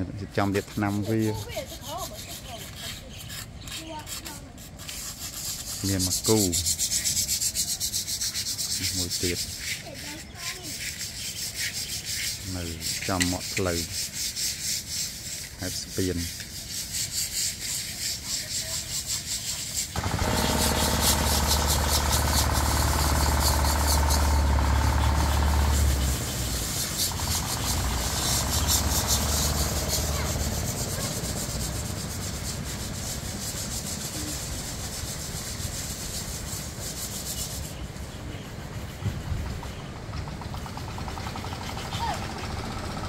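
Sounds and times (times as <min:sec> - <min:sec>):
hands scrubbing concrete: 0:00.4 - 0:38.8
engine hum: 0:20.0 - 0:38.2, 0:38.8 - 0:43.0.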